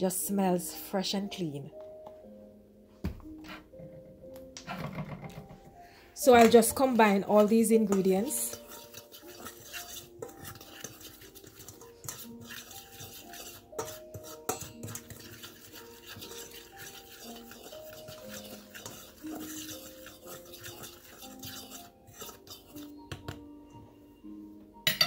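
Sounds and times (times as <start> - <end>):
soft background music: 0.0 - 25.0
fork scraping a metal bowl: 6.8 - 23.1.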